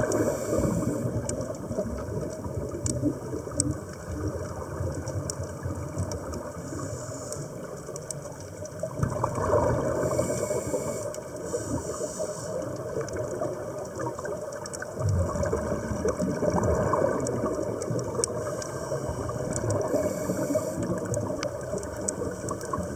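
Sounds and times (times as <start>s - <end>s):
scuba regulator inhale hiss: 0.0s - 1.2s, 6.7s - 7.7s, 9.9s - 12.7s, 18.4s - 21.1s
exhaled bubbles burbling: 0.0s - 6.7s, 8.3s - 11.4s, 12.6s - 22.9s
bubbling water background: 0.0s - 22.9s.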